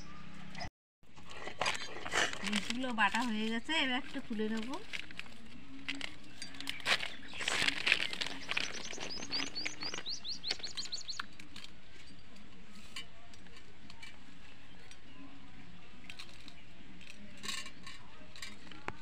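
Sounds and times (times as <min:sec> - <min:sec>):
bird chirping: 0:06.4 - 0:11.4.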